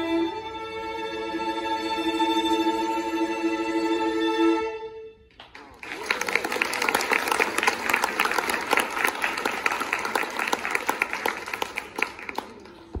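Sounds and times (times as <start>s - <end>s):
audience applauding: 5.3s - 13.0s.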